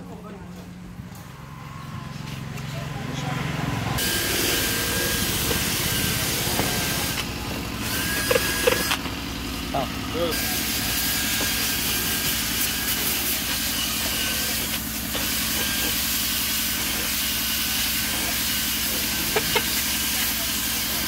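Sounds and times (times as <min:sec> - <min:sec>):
cordless drill scrub brush: 0:04.0 - 0:09.0, 0:10.2 - 0:21.0.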